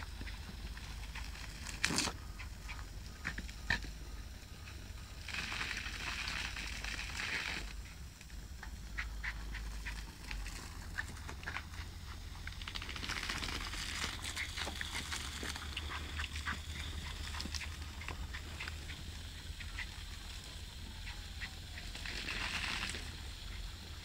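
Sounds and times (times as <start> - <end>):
low steady rumble: 0.0 - 24.0
garden hose water spattering: 4.5 - 8.4, 9.0 - 24.0.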